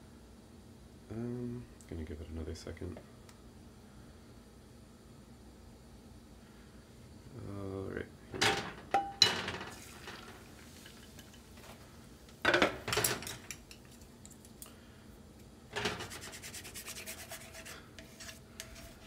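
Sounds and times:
chopsticks scraping a frying pan: 0:15.8 - 0:19.0.

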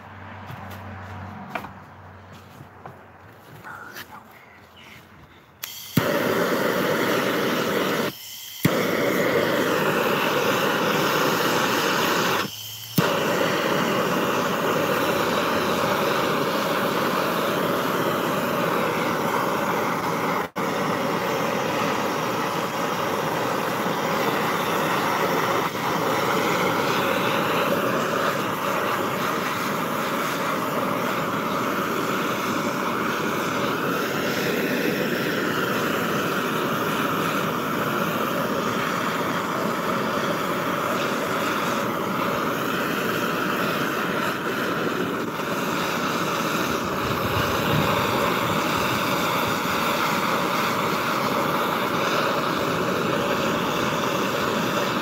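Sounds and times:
propane torch hissing: 0:03.6 - 0:55.0
torch lighting pop: 0:05.6 - 0:18.0.

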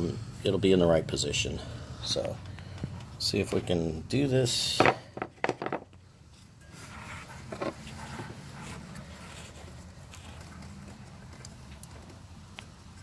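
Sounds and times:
steady low hum: 0:00.0 - 0:13.0
light plastic clicks and rustles: 0:08.9 - 0:13.0.

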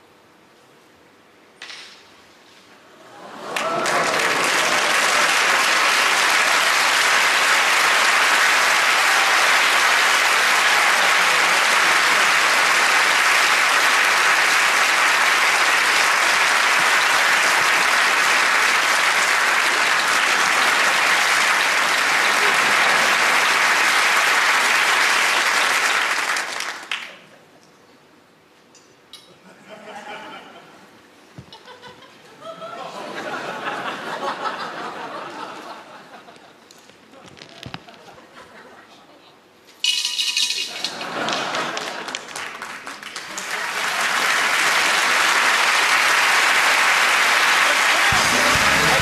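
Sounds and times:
large audience applauding: 0:03.2 - 0:27.2, 0:40.8 - 0:49.0.

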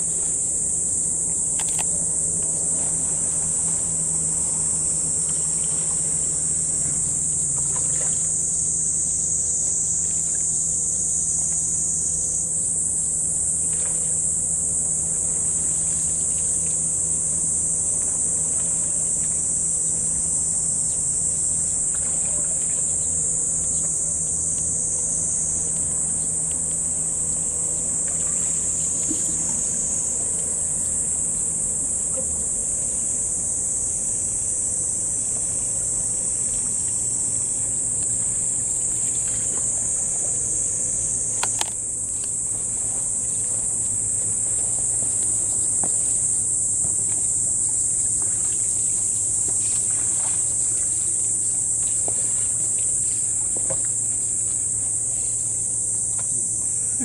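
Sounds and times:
faint low hum: 0:00.0 - 0:57.0
insect chorus drone: 0:00.0 - 0:57.0
sharp click: 0:01.6 - 0:01.9.

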